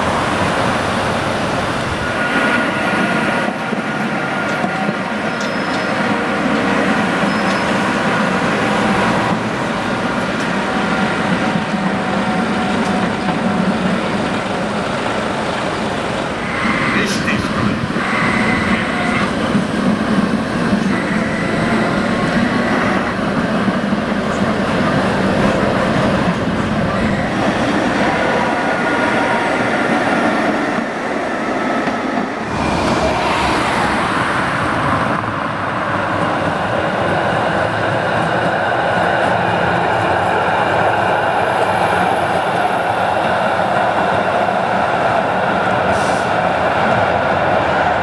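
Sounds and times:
tram wheels rumbling on rail: 0:00.0 - 0:48.0
thin squeal: 0:05.4 - 0:06.0, 0:07.2 - 0:07.8.

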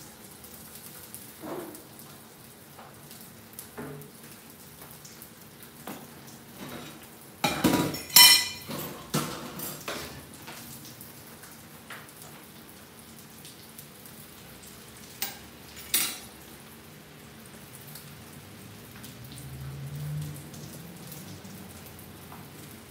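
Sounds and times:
fish sizzling in oil: 0:00.0 - 0:20.6
kitchenware clattering: 0:06.6 - 0:10.3, 0:15.2 - 0:16.4.

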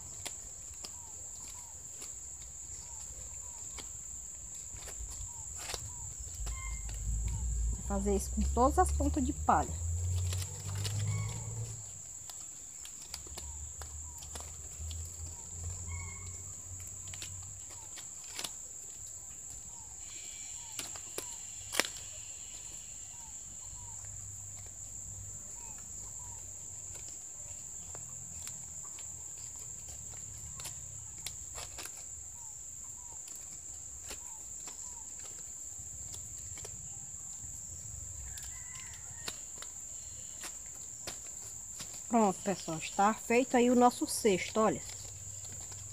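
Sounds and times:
leaf snapping: 0:00.0 - 0:22.3, 0:23.2 - 0:45.9
high insect drone: 0:00.0 - 0:45.9
palm leaves rustling and crackling: 0:00.0 - 0:45.9.

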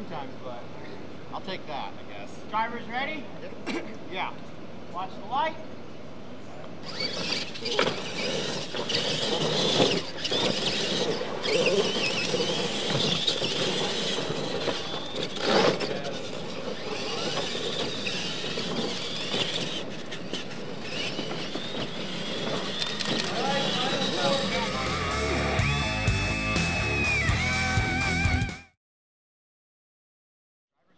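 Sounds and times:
tyres on dirt: 0:06.7 - 0:26.5
high electric motor whine: 0:06.8 - 0:28.5
toy trucks landing thumps: 0:06.9 - 0:23.4.

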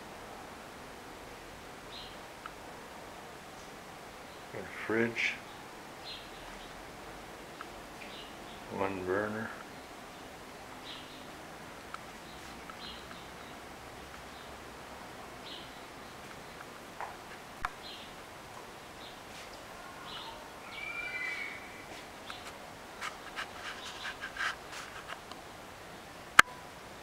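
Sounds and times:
birds chirping: 0:01.9 - 0:02.6, 0:03.6 - 0:25.2
warbling bird call: 0:19.7 - 0:22.5.

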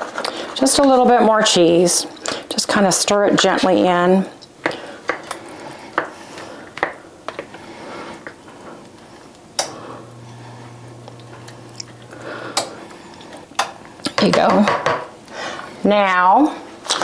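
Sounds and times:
low steady hum: 0:08.9 - 0:16.6
spoon tapping and scraping bowl: 0:14.0 - 0:15.1.

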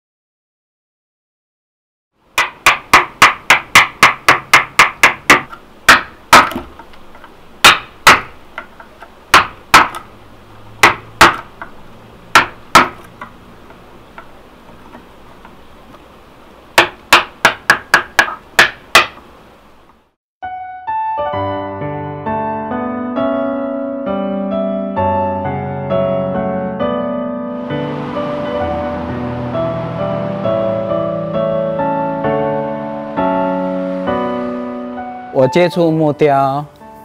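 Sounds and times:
mallet striking chisel into wood: 0:02.4 - 0:06.9, 0:07.6 - 0:10.1, 0:10.8 - 0:14.3, 0:16.8 - 0:19.2.

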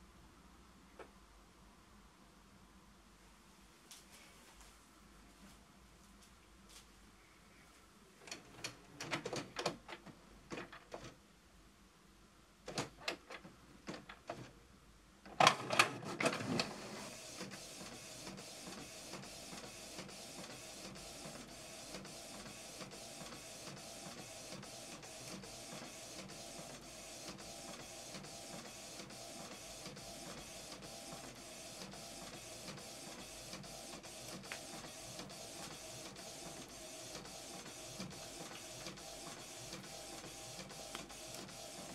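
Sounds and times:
inkjet printer printing: 0:15.4 - 0:41.9.

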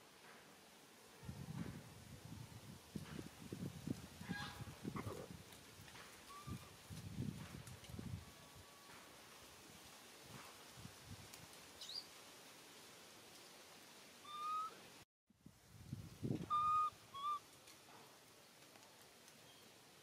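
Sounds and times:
baby monkey coo calls: 0:14.2 - 0:14.8, 0:16.5 - 0:17.4.

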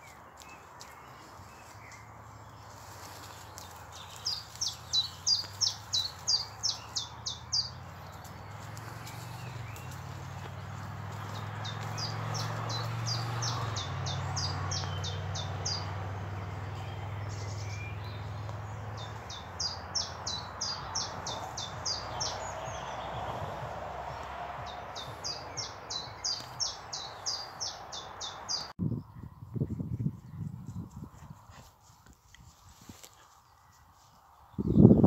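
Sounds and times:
footsteps: 0:00.0 - 0:07.0, 0:07.8 - 0:15.1
songbird singing high repeated notes: 0:03.6 - 0:30.8.

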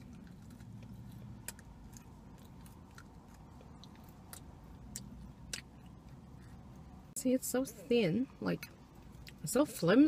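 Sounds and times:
crunching and chewing cookie: 0:00.0 - 0:07.1.

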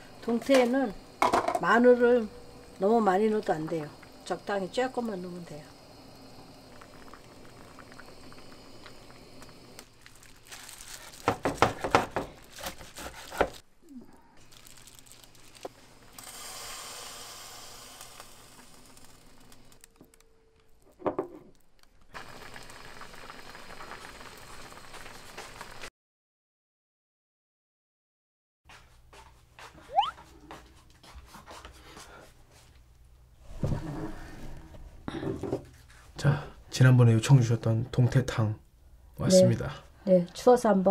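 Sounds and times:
stew bubbling at a boil: 0:00.0 - 0:10.5, 0:22.1 - 0:25.9.

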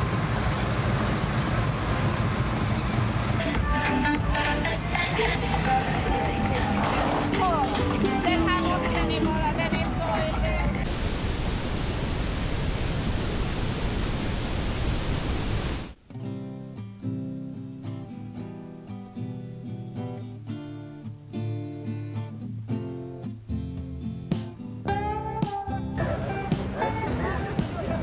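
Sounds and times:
steady rush of noise: 0:10.8 - 0:16.0.

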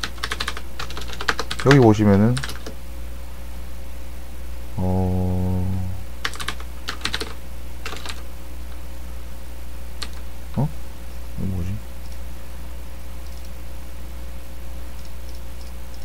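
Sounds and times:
computer keyboard typing: 0:00.0 - 0:02.8, 0:06.2 - 0:08.2
short vocal sounds: 0:04.7 - 0:06.1.

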